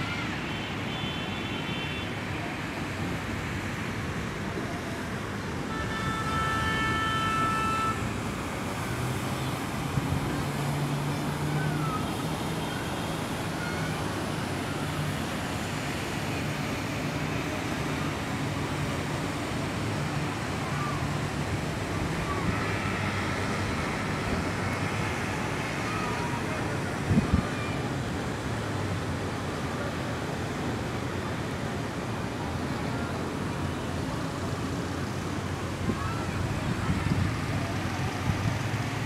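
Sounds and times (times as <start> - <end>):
street traffic noise: 0.0 - 39.0
vehicle horn: 5.7 - 8.0.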